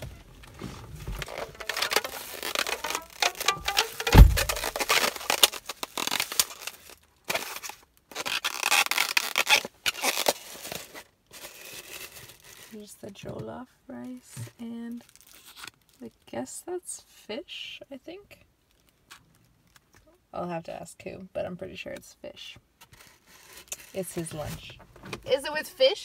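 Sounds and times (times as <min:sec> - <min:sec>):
foam box squeaky scraping: 0:00.0 - 0:12.8, 0:22.9 - 0:24.5
plastic bag crinkling: 0:00.0 - 0:13.0, 0:13.9 - 0:16.2
dull thump: 0:00.6 - 0:05.0.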